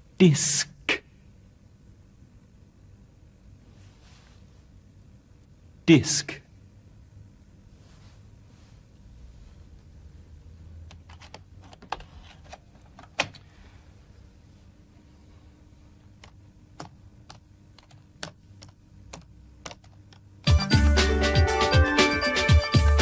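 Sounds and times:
laptop keyboard typing: 0:10.8 - 0:13.3, 0:16.1 - 0:20.5.

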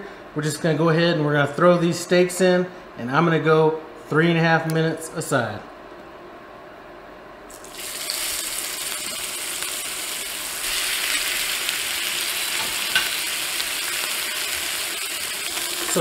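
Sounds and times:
steak sizzling in a skillet: 0:07.5 - 0:16.0.

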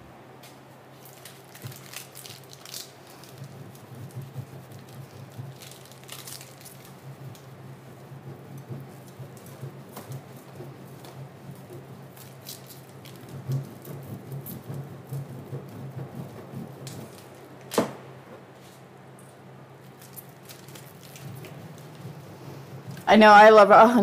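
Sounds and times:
food grated on metal grater: 0:01.2 - 0:17.4.

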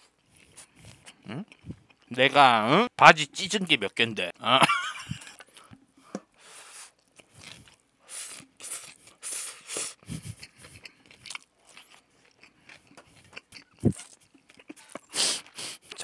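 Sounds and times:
slurping and chewing noodles: 0:00.0 - 0:02.1, 0:06.4 - 0:16.0.

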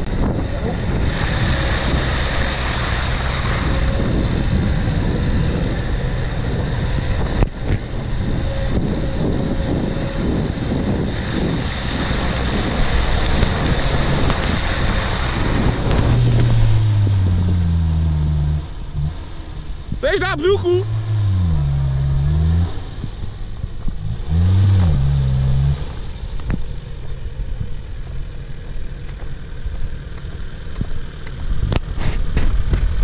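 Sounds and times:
wind buffeting microphone: 0:00.0 - 0:18.0
tyres splashing through water: 0:00.0 - 0:27.3
deep engine note: 0:00.0 - 0:27.4
car engine running: 0:00.0 - 0:33.0.

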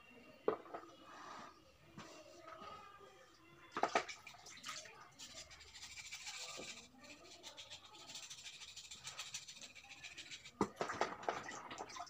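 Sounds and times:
soft scraping on stone: 0:05.2 - 0:10.6.

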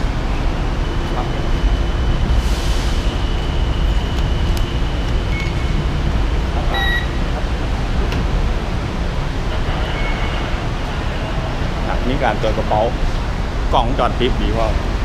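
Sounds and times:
low rumble of station noise: 0:00.0 - 0:15.0
metal detector tone: 0:06.7 - 0:07.2
short beep: 0:06.7 - 0:07.2.

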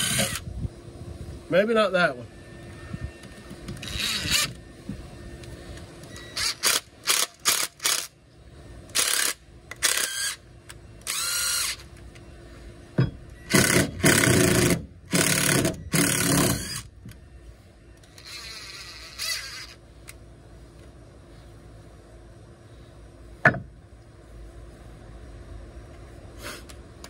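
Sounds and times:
cordless drill drilling wood: 0:00.0 - 0:00.4, 0:09.0 - 0:10.4, 0:11.0 - 0:11.8, 0:13.5 - 0:16.9, 0:18.2 - 0:19.8.

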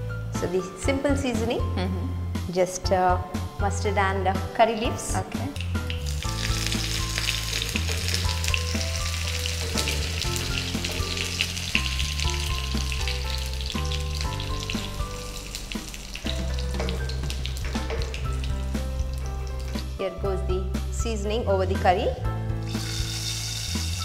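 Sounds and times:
seeds sizzling and popping in oil: 0:05.6 - 0:20.1, 0:22.7 - 0:24.0.

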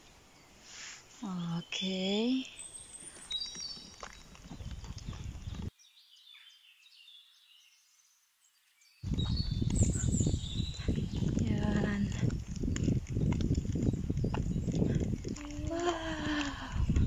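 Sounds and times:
small birds chirping: 0:00.0 - 0:17.0
wind rumbling on microphone: 0:03.3 - 0:05.7, 0:09.0 - 0:17.0.

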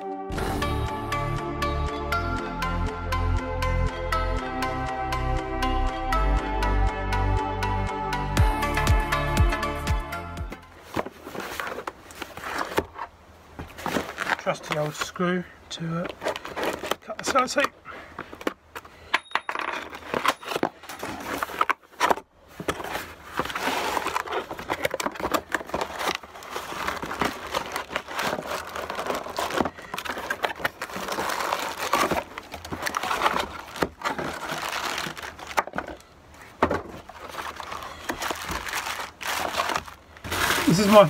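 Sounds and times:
cardboard box flaps rustling: 0:10.8 - 0:14.8, 0:20.1 - 0:41.0
plastic bags crinkling: 0:13.7 - 0:15.2, 0:15.8 - 0:17.7, 0:18.3 - 0:41.0.

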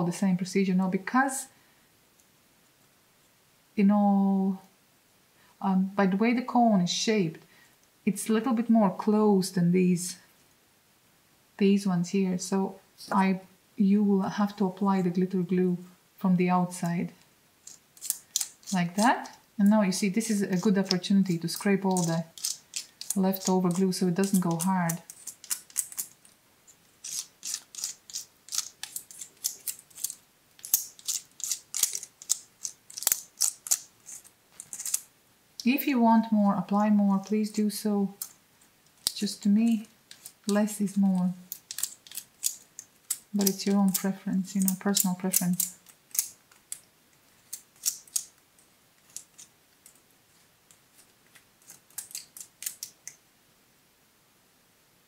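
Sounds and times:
stick scraping pine cone: 0:17.6 - 0:19.4, 0:20.2 - 0:35.1, 0:39.0 - 0:46.8.

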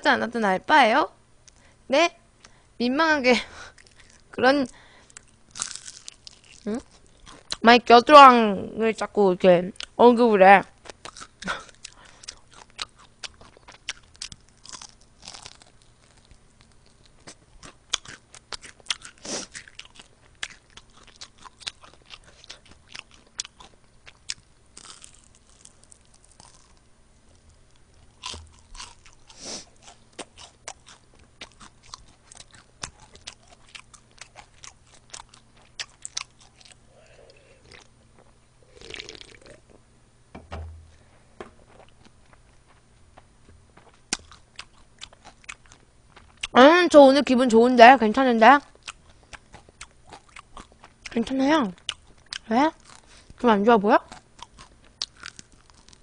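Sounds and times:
crunchy chewing: 0:03.7 - 0:07.6, 0:10.8 - 0:39.8, 0:43.8 - 0:46.6, 0:48.6 - 0:53.4, 0:54.1 - 0:56.0.

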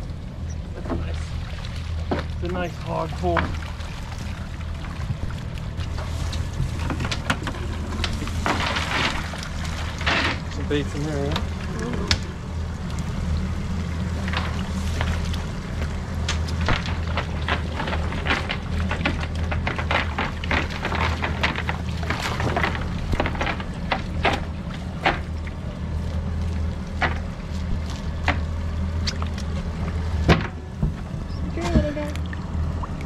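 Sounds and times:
steady low hum: 0:00.0 - 0:33.0
net weights and fish clattering: 0:06.0 - 0:11.5, 0:16.3 - 0:25.5.

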